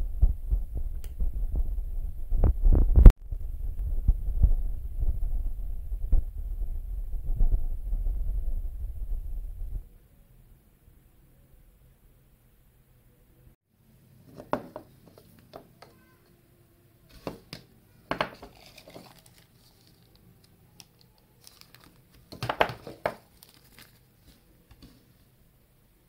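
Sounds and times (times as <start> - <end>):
plastic wrapping crinkling: 18.3 - 25.0.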